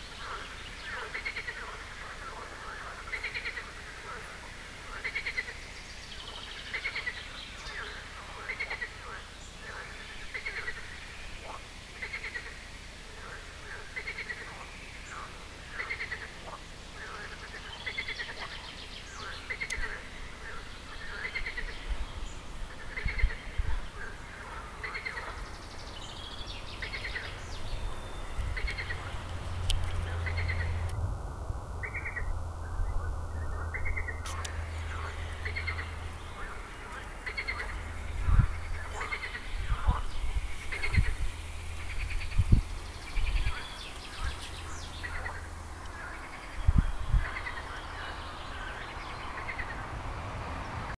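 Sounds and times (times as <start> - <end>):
birds chirping: 0.0 - 31.0, 31.7 - 50.9
frog croaking: 0.2 - 5.6, 6.7 - 21.9, 22.7 - 25.6, 26.8 - 29.2, 29.9 - 31.0, 31.8 - 32.3, 32.9 - 41.2, 41.8 - 49.8
low rumble: 27.2 - 50.9.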